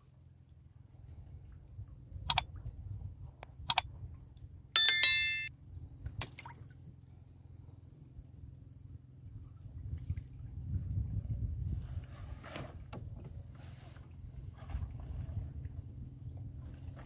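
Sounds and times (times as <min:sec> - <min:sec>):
notification bell chime: 0:04.8 - 0:05.5.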